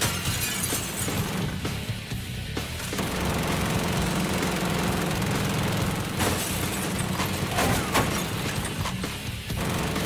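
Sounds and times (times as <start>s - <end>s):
gatling gun firing burst: 2.9s - 8.5s, 9.5s - 10.0s.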